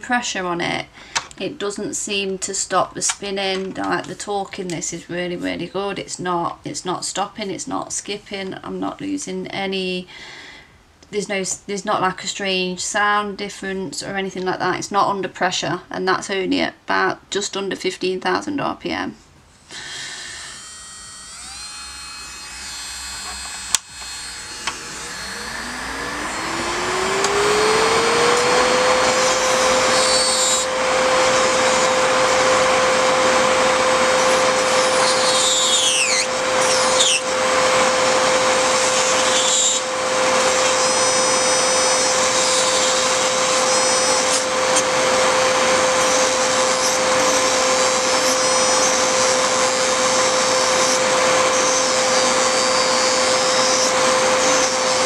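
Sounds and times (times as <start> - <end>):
nail file motor whine: 19.7 - 55.0
sanding bit grinding gel: 21.4 - 55.0
dust collector fan rushing: 23.3 - 55.0.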